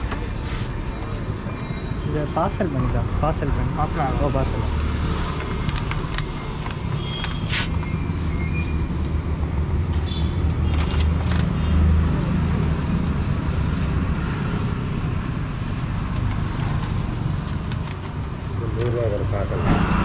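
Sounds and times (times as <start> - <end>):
road traffic rumbling: 0.0 - 20.0
motorbikes passing: 11.6 - 20.0.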